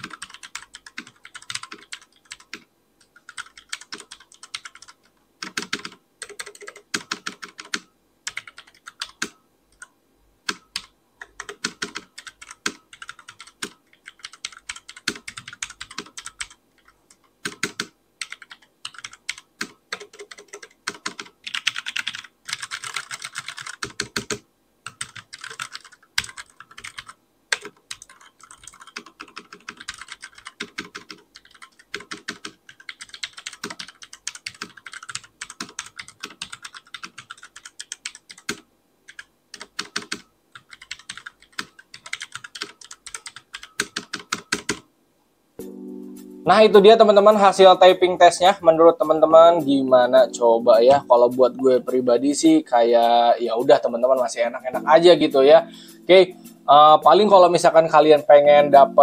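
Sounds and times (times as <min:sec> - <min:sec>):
fast typing on mechanical keyboard: 0:00.0 - 0:02.6, 0:03.2 - 0:09.9, 0:10.5 - 0:44.8.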